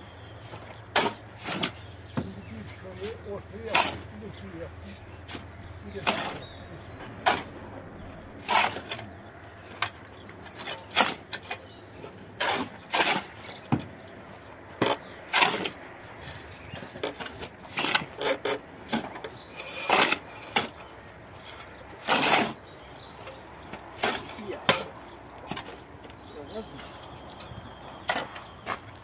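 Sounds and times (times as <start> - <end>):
shovels scraping cement and gravel: 0.4 - 7.7, 8.3 - 27.0.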